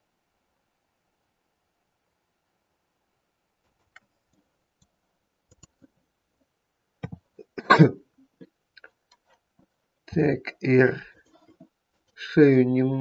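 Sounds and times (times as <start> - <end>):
keyboard and mouse clicks: 3.8 - 4.9, 5.5 - 5.9, 7.0 - 7.3
man coughing: 7.5 - 8.0.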